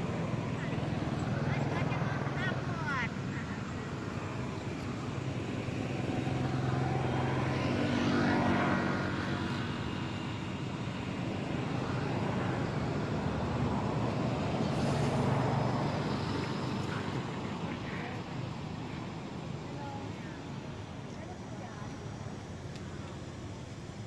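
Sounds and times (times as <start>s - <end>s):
motor engine drone: 0.0s - 18.8s.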